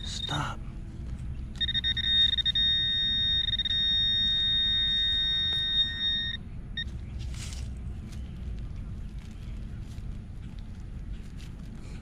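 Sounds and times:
high-pitched alarm tone: 1.6 - 6.4
short beep: 1.6 - 6.4.

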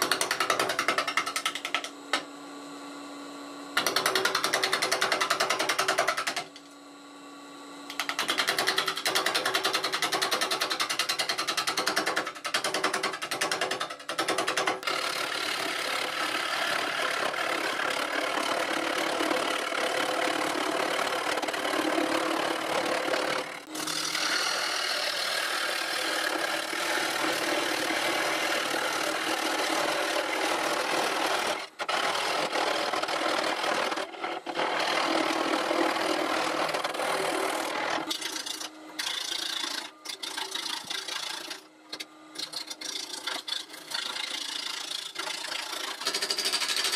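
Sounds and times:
gouge scraping wood on lathe: 14.8 - 46.9.

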